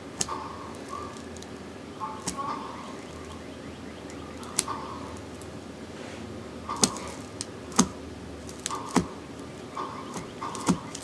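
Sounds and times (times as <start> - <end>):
low steady hum: 0.0 - 11.0
sharp clicks: 6.7 - 11.0.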